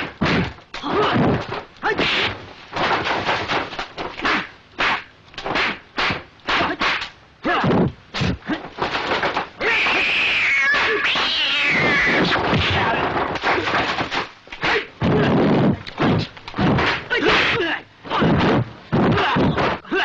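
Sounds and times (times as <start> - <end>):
cats yowling while fighting: 9.6 - 12.3.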